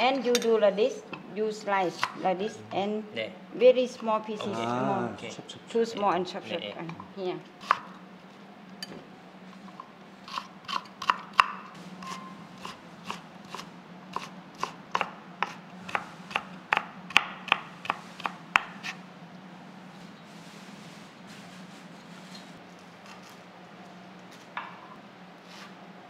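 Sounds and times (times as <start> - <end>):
knife chopping on wooden board: 10.3 - 19.0.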